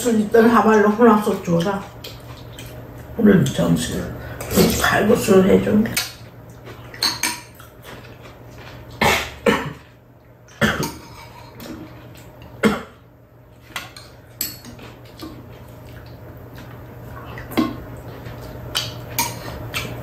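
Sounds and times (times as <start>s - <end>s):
metal cutlery clinking on bowls: 6.9s - 7.7s, 10.8s - 12.3s, 13.6s - 15.4s, 18.8s - 20.0s.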